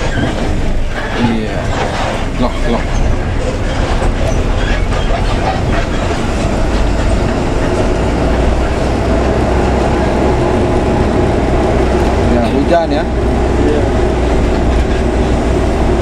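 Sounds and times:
bus engine drone: 0:00.0 - 0:16.0
road noise on wet road: 0:00.0 - 0:16.0.

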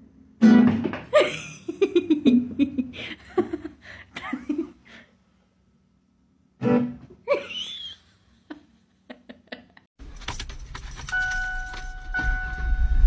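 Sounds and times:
person laughing: 0:01.1 - 0:04.8, 0:07.2 - 0:09.9.

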